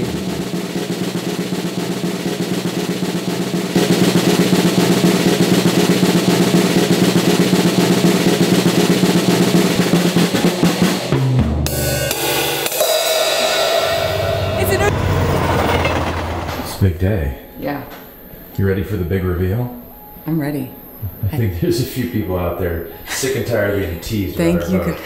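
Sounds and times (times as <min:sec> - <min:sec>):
low drum hit: 0:00.0 - 0:16.7
cymbal crash: 0:00.0 - 0:16.8
drum roll with sticks: 0:00.0 - 0:16.8.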